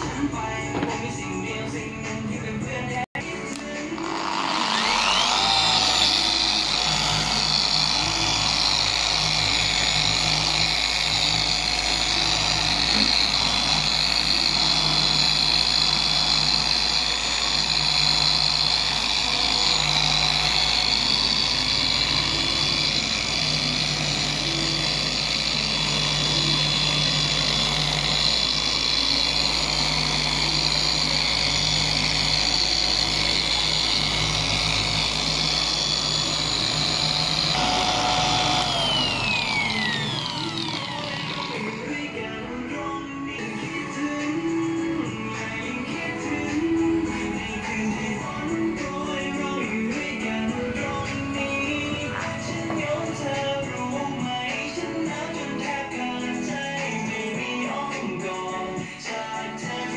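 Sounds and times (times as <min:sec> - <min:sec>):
orbital sander motor whine: 0:03.5 - 0:43.2
sanding pad rasping: 0:03.9 - 0:42.1.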